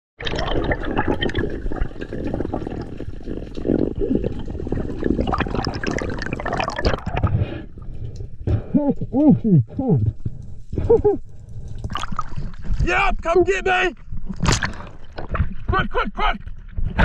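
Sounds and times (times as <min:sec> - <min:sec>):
underwater sloshing and bubbling: 0:00.2 - 0:09.1, 0:10.0 - 0:12.8, 0:14.0 - 0:15.8.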